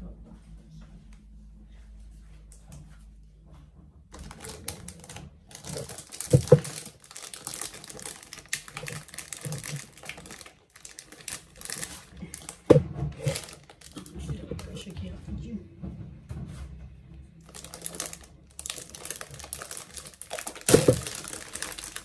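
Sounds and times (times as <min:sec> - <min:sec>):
plastic wrapping crinkling: 0:04.1 - 0:14.9, 0:17.4 - 0:22.0.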